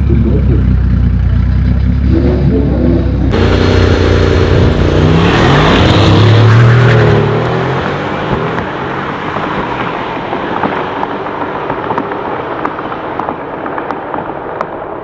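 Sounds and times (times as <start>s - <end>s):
exhaust crackles and pops: 10.5s - 15.0s.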